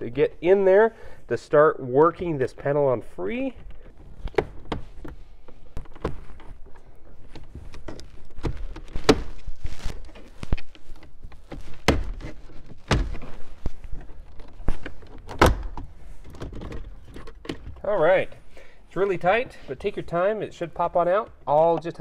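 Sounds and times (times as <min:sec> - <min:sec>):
tool scraping plastic: 0:05.8 - 0:15.5.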